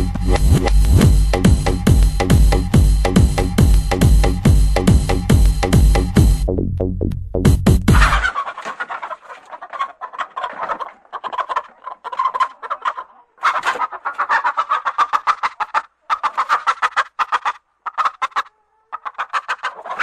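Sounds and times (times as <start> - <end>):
bird clucking: 7.9 - 20.0.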